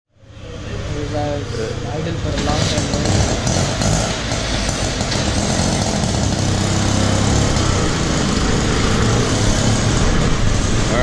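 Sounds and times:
small engine puttering: 0:02.3 - 0:11.0.

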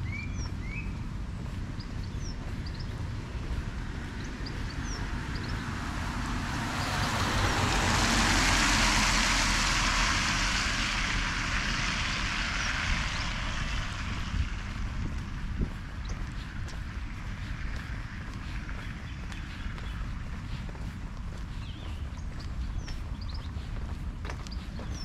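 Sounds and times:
car tyres hissing on wet road: 0:03.7 - 0:20.3.

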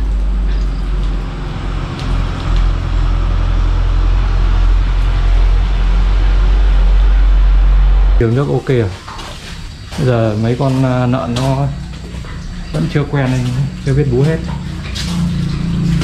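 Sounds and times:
loud low rumble: 0:00.0 - 0:08.7.

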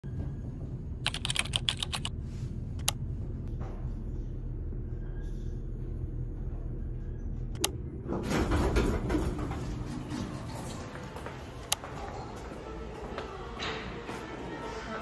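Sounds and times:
elevator humming: 0:00.0 - 0:15.0
sharp clicks: 0:01.1 - 0:02.1.

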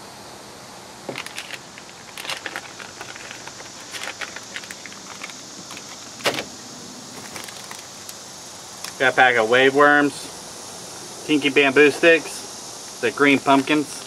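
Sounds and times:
plastic packaging crinkling: 0:01.1 - 0:06.5, 0:07.1 - 0:08.0
pack set down knock: 0:06.2 - 0:06.5.

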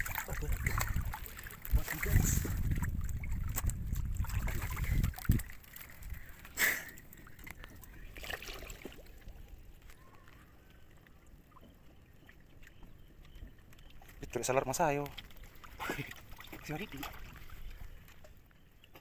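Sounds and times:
water sloshing and splashing: 0:00.0 - 0:19.0.

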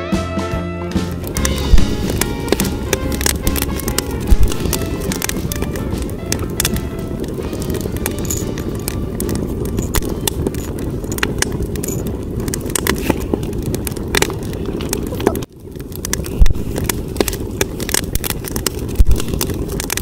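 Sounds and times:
wood fire crackling and popping: 0:00.9 - 0:20.0
low rush: 0:01.0 - 0:20.0
low thump: 0:01.5 - 0:02.8.

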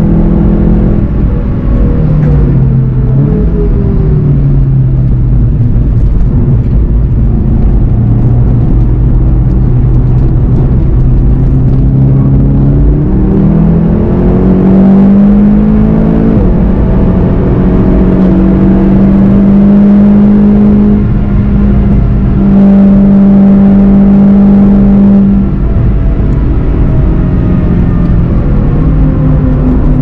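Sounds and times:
car engine revving hard: 0:00.0 - 0:30.0.

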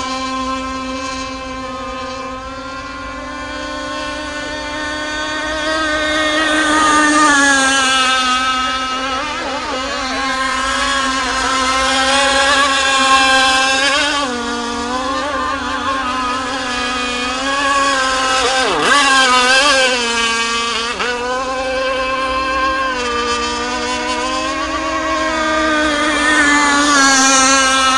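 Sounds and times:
model boat engine high whine: 0:00.0 - 0:27.9.

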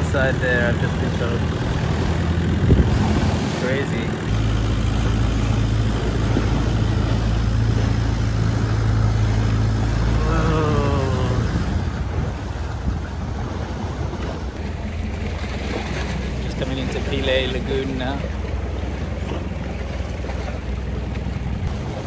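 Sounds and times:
boat engine running: 0:00.0 - 0:22.0
water rushing past hull: 0:00.0 - 0:22.0
wind on microphone: 0:00.7 - 0:14.6.

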